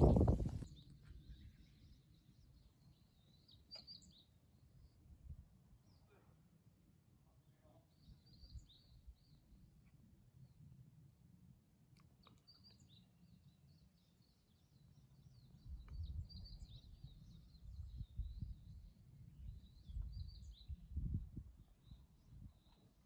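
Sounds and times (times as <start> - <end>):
wind buffeting microphone: 0.0 - 1.4, 15.6 - 22.6
small birds chirping: 0.0 - 5.0, 7.4 - 10.6, 12.0 - 23.0.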